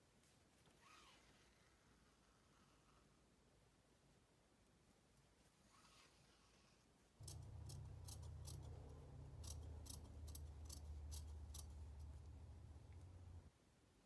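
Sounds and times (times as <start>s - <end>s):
faint low hum: 0.0s - 14.0s
shears snipping fabric: 7.2s - 12.3s.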